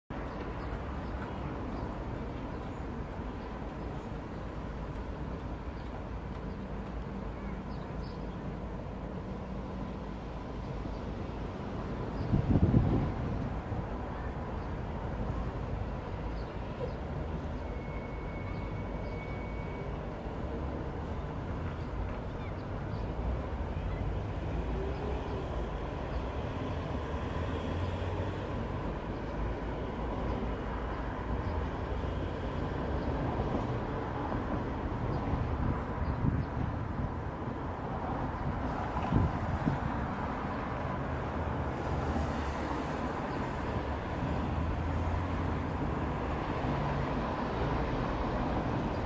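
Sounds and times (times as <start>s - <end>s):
distant steam locomotive rumble: 0.2s - 36.0s.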